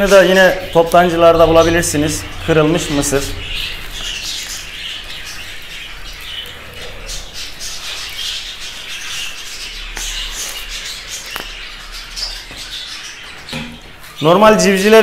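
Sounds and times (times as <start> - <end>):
budgerigars chattering and squawking: 0.0 - 15.0.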